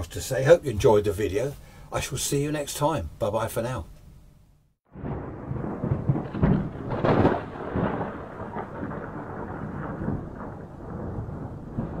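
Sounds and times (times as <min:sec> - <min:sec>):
steady rain: 0:04.9 - 0:12.0
thunder rumbling: 0:04.9 - 0:12.0.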